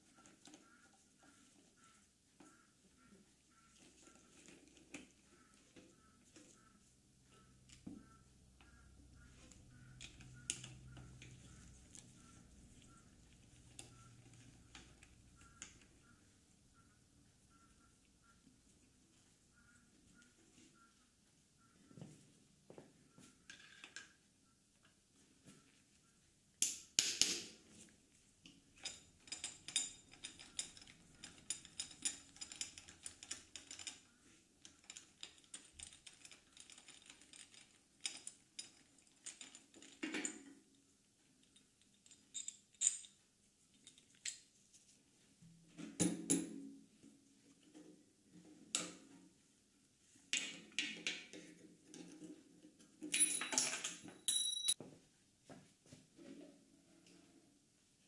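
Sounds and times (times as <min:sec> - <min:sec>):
ringing metal clink: 0:53.1 - 0:54.8
hex key metallic ticks and clicks: 0:54.2 - 0:54.8.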